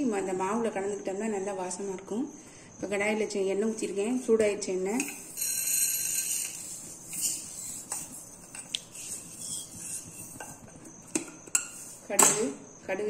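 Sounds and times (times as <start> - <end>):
hot oil hissing: 5.0 - 10.7.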